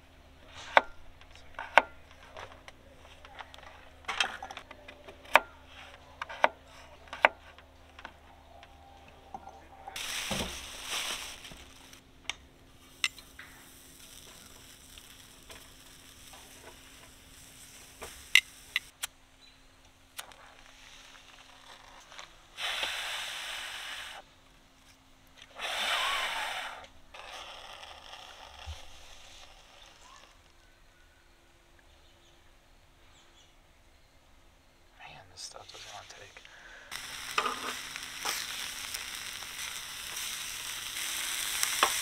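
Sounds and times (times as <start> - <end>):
food sizzling in a frying pan: 10.0 - 12.0, 12.8 - 18.9, 36.9 - 42.0.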